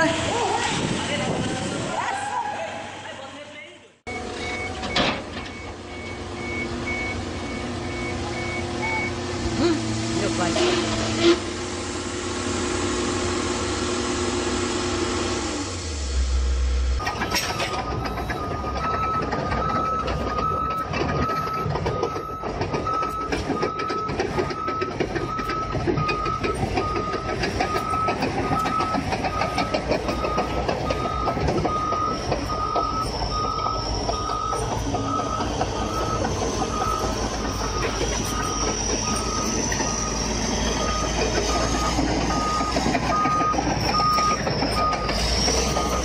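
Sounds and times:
back-up alarm beeping: 4.1 - 9.2, 17.0 - 46.0
bulldozer diesel engine running: 4.1 - 46.0
tracks clattering: 17.0 - 46.0.

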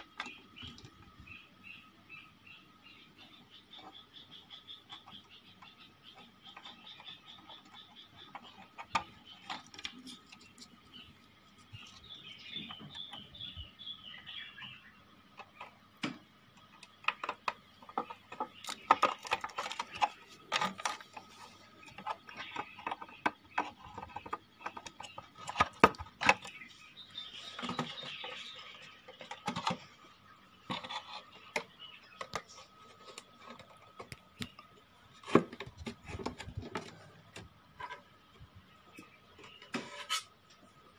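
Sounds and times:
clicks and knocks of handling parts: 15.4 - 26.6.

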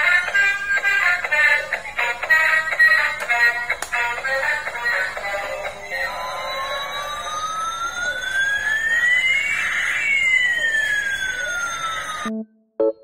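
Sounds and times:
toy siren tone sliding: 5.7 - 12.3.

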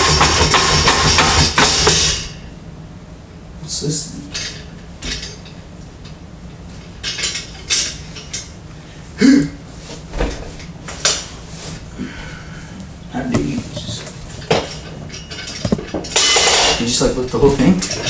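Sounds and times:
metal weight plates clanking: 13.8 - 18.0.

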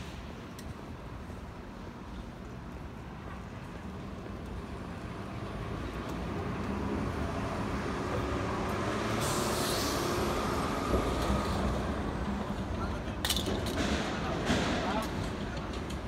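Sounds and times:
hiss: 9.1 - 11.6.

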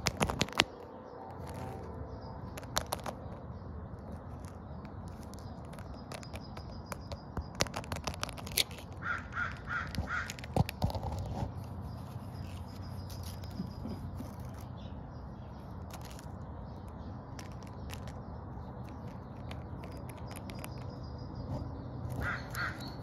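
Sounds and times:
low outdoor background: 0.0 - 23.0
crow cawing: 9.0 - 10.4, 22.2 - 23.0.

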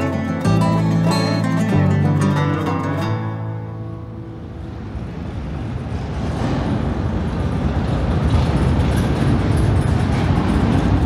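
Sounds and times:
motorcycle engines rumbling: 0.0 - 11.0.

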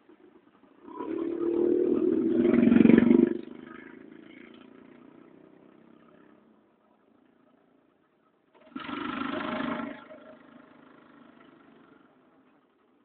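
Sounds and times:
vehicle engine passing: 0.8 - 6.6.

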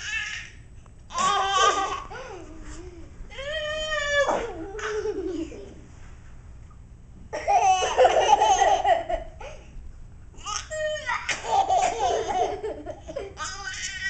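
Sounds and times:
baby laughing: 1.1 - 2.4, 4.3 - 5.8, 7.4 - 9.6, 10.4 - 14.0
girl laughing: 1.2 - 2.5, 4.4 - 5.8, 7.4 - 9.6, 10.7 - 13.4.

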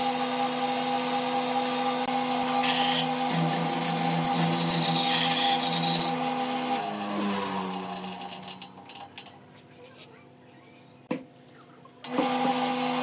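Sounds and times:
lathe motor humming: 0.0 - 9.2
turning tool scraping wood: 2.5 - 8.5.

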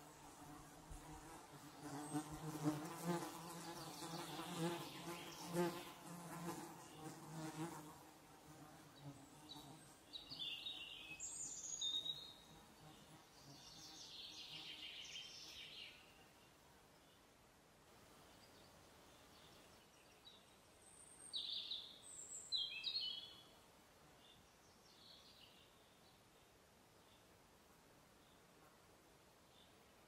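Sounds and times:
flying insect buzzing: 0.0 - 10.0.

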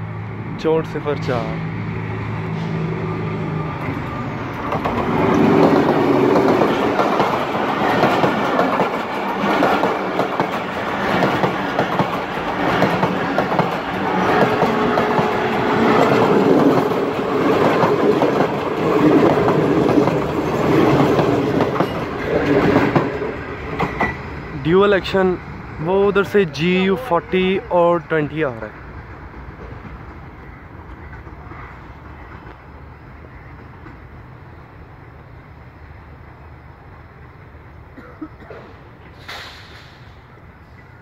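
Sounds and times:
diesel locomotive engine humming: 0.0 - 41.0
train wheels clacking over rail joints: 4.6 - 24.2.

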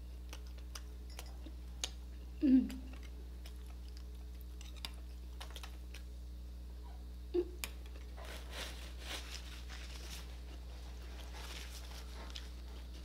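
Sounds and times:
chewing food: 0.0 - 2.0, 2.6 - 6.1
steady low hum: 0.0 - 13.0.

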